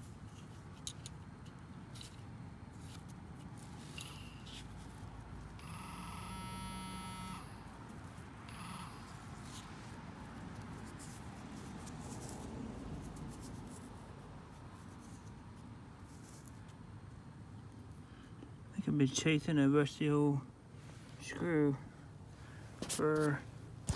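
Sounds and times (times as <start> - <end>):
scraping and rustling in soil: 0.0 - 5.6, 9.0 - 17.0, 22.6 - 23.9
pinpointer buzzing alert tone: 5.6 - 7.6, 8.4 - 9.2.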